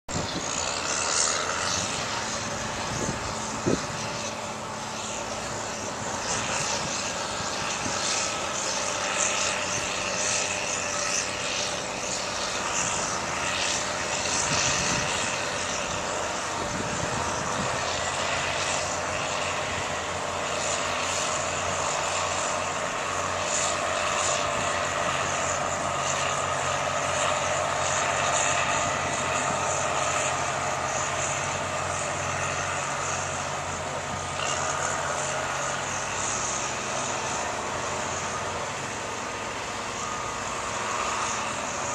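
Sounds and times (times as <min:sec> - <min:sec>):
diesel bulldozer engine drone: 0:00.0 - 0:41.9.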